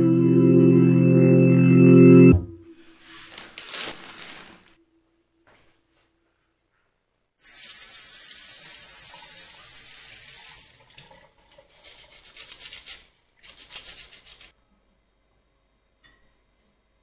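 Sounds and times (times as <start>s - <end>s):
tap water running into bowl: 7.5s - 12.2s
potatoes scrubbed by hand: 11.7s - 14.5s.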